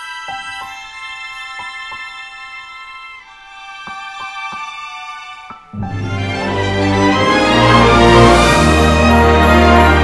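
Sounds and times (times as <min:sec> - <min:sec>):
background music: 0:00.0 - 0:10.0
plucked notes: 0:05.4 - 0:10.0.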